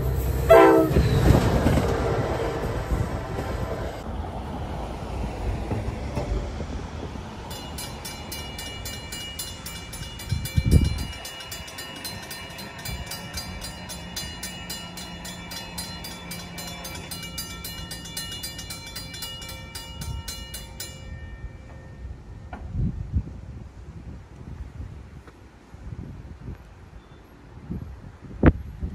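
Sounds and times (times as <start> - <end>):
crossing warning bells ringing: 0.0 - 4.0, 7.3 - 22.8.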